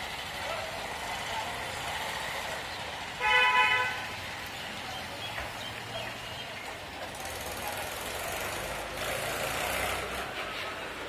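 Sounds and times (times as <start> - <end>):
street traffic hum: 0.0 - 11.0
vehicle horn honk: 3.2 - 4.1.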